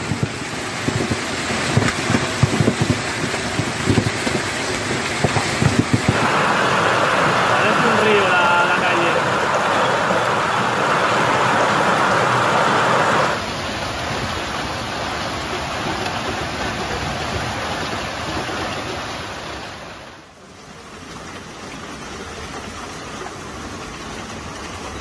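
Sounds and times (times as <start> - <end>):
hail and rain pelting street: 0.0 - 25.0.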